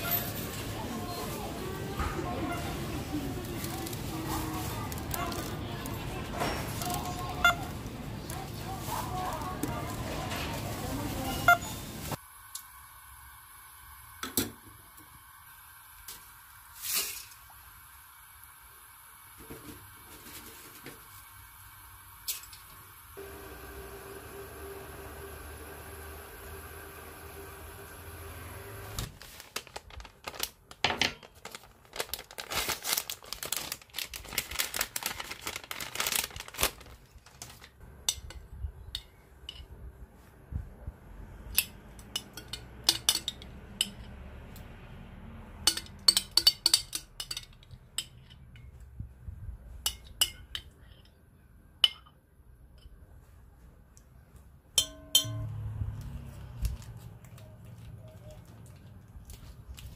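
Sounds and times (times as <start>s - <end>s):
crinkling of packets: 1.8s - 11.4s, 29.0s - 37.8s, 56.3s - 59.9s
clinks against glass bowl: 45.7s - 48.7s, 54.8s - 55.6s.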